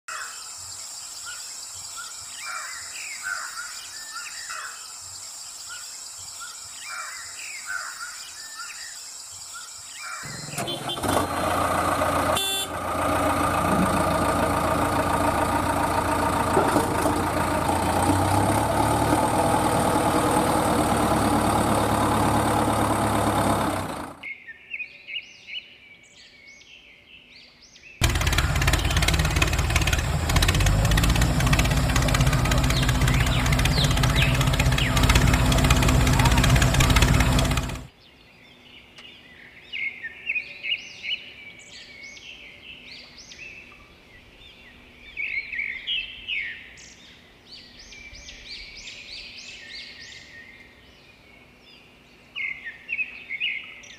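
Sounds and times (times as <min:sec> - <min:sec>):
birds chirping: 0:00.1 - 0:26.1, 0:27.9 - 0:53.9
engine running loudly: 0:10.3 - 0:24.2, 0:28.0 - 0:37.9.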